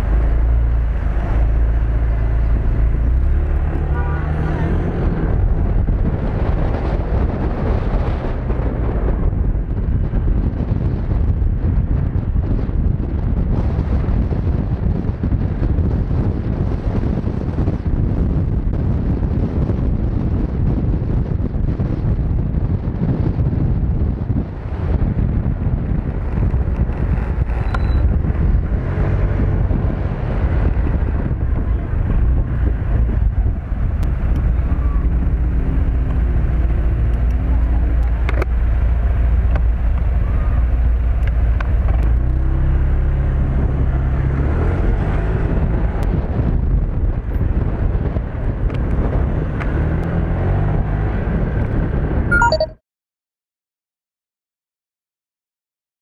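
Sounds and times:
motorcycle engine rumble: 0:00.0 - 0:42.2
wind buffeting microphone: 0:00.0 - 0:52.3.

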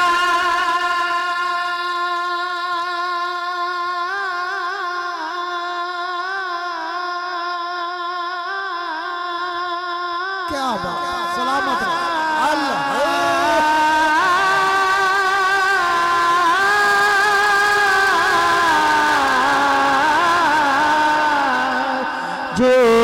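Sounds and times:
man singing long held note: 0:00.0 - 0:23.0.

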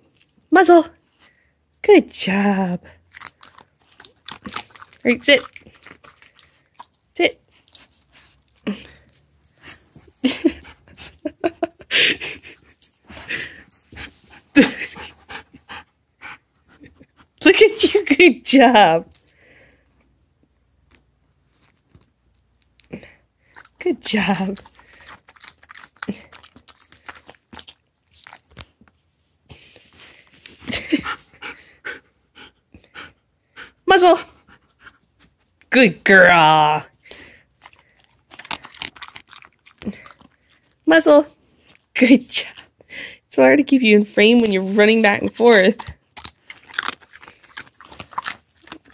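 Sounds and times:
husky snuffling and breathing: 0:07.4 - 0:17.4, 0:28.2 - 0:35.5
dog breathy huffs: 0:29.5 - 0:33.8.

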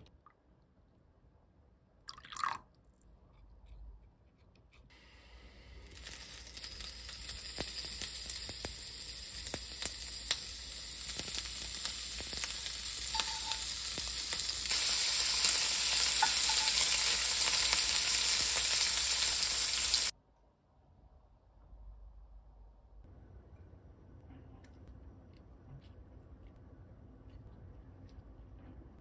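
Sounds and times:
meat sizzling in a pan: 0:05.1 - 0:20.1.

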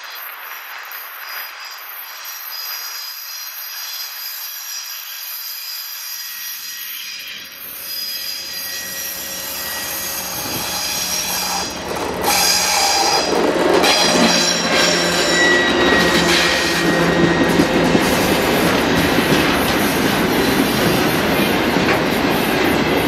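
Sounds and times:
train wheels ringing on rails: 0:04.5 - 0:23.0
diesel locomotive engine hum: 0:07.4 - 0:23.0.

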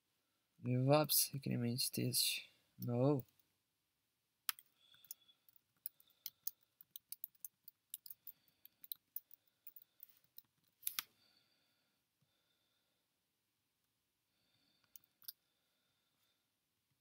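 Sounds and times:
faint keyboard typing: 0:04.5 - 0:11.1.

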